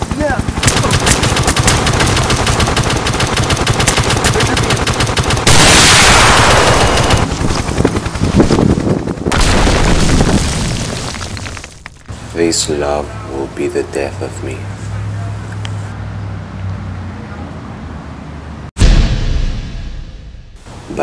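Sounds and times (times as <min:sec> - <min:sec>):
rapid gunfire: 0:00.2 - 0:08.1
rushing energy blast: 0:05.4 - 0:07.3
explosion with deep rumble: 0:05.5 - 0:07.3, 0:09.3 - 0:11.3, 0:18.8 - 0:20.6.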